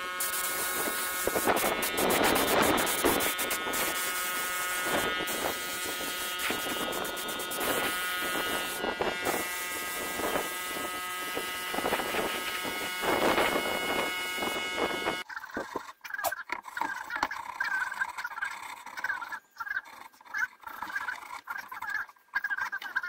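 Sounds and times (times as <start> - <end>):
spray gun hissing: 0.0 - 15.2
steady electric buzz: 0.0 - 15.3.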